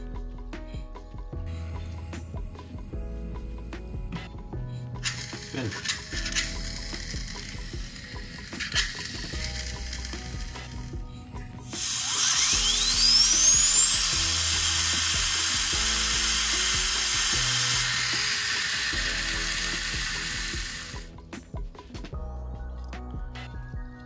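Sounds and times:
spray can hissing: 5.0s - 10.9s, 11.6s - 21.1s
thin high-pitched whine: 5.0s - 21.1s.

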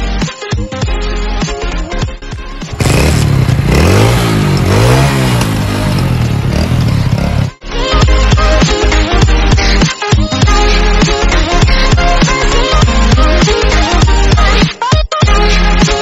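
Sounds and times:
electronic background music: 0.0s - 16.0s
motorcycle engine revving: 2.6s - 7.6s.

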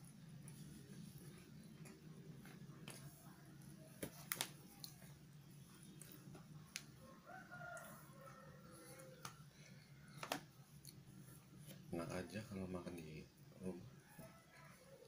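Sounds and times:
rooster crowing faintly: 6.8s - 10.6s, 13.8s - 15.0s.

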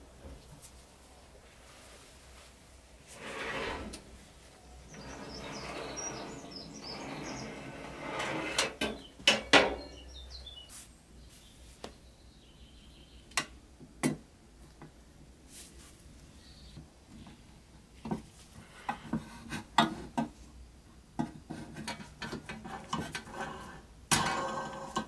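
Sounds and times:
metal oven rack scraping: 3.1s - 4.1s, 4.9s - 9.0s.

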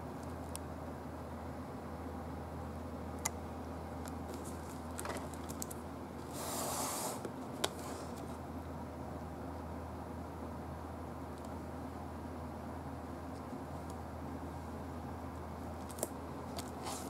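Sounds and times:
box swishing rustle: 16.7s - 17.0s.

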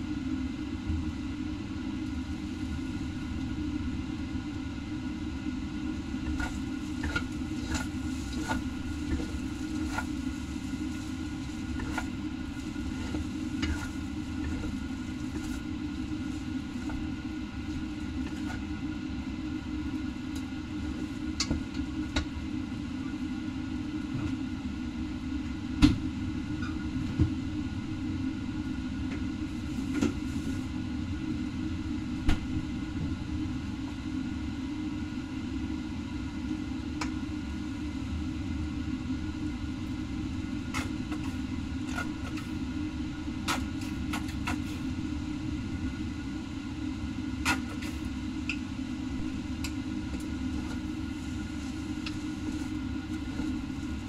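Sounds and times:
wok low rumble: 0.0s - 24.1s, 37.3s - 54.0s.

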